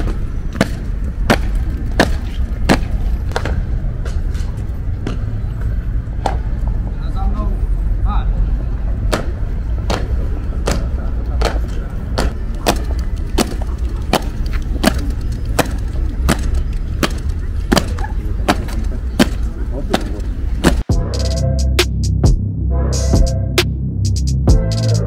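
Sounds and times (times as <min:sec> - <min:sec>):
low rumble: 0:20.8 - 0:25.0
music: 0:20.9 - 0:25.0.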